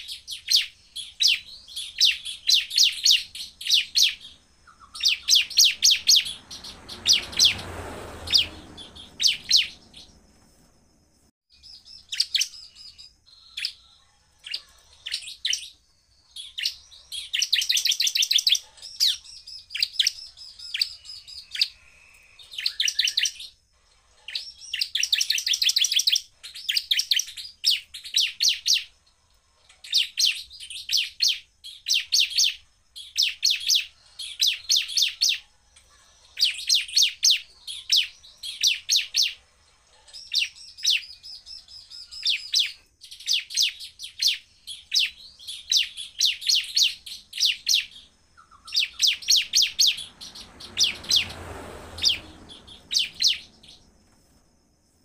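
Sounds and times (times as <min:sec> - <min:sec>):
bird singing rapid high notes: 0:00.0 - 0:10.3, 0:40.2 - 0:53.8.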